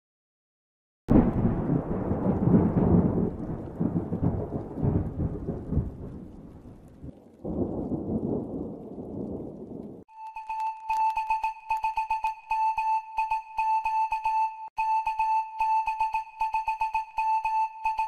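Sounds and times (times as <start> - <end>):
rumbling thunder: 1.1 - 10.1.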